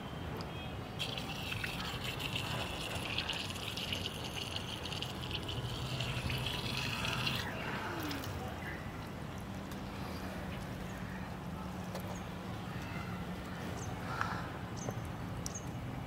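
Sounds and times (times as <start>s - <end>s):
water trickling into a tub: 1.0s - 9.5s.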